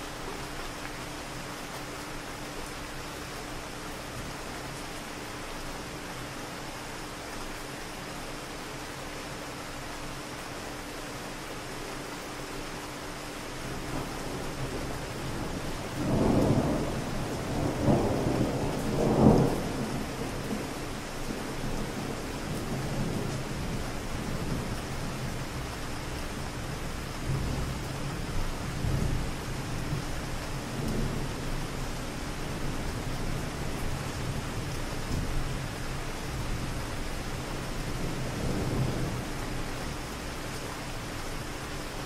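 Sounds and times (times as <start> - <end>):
steady rain: 0.0 - 42.0
distant thunder rumbling: 13.9 - 20.7, 37.9 - 39.4.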